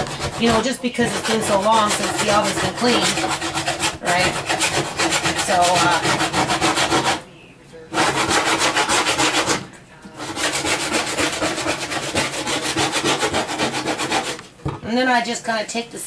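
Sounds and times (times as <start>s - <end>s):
rapid scraping on glass: 0.0s - 7.2s, 10.2s - 14.4s.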